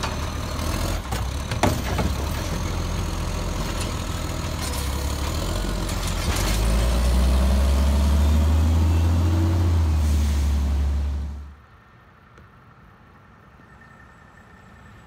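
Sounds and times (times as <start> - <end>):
garbage truck diesel engine: 0.0 - 11.6.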